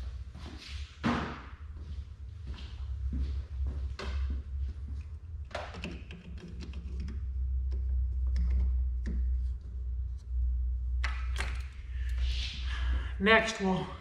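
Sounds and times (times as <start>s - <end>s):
steady low hum: 0.0s - 14.0s
hands tapping car parts: 5.5s - 9.7s.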